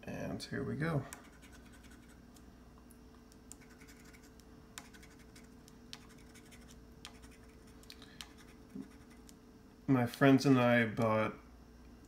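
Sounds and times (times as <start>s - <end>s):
scratching lottery ticket coating: 3.6s - 9.3s.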